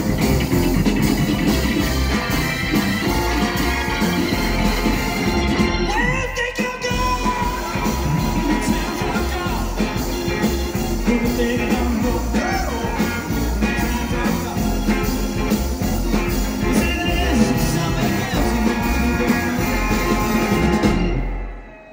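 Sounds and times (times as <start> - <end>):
live rock and roll band: 0.0 - 21.8
man singing: 5.8 - 21.0.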